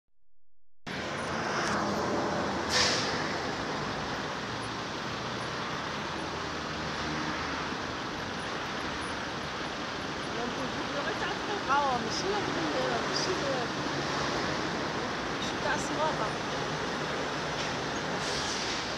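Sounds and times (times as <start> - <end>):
car road and engine noise: 0.9 - 18.9
short sharp hiss: 2.7 - 3.4, 18.2 - 18.9.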